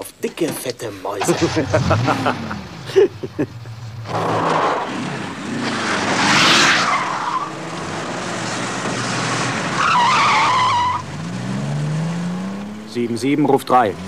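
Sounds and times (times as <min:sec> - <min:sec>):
car engine accelerating: 0:01.2 - 0:14.0
tyre squeal: 0:09.7 - 0:11.1.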